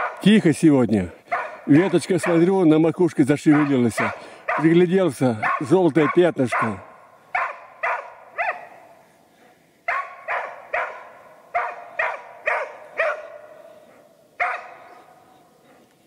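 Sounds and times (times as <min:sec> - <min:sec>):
dog barking sharply: 0:00.0 - 0:00.2, 0:01.3 - 0:02.4, 0:03.5 - 0:04.8, 0:05.4 - 0:08.9, 0:09.9 - 0:13.6, 0:14.4 - 0:15.2.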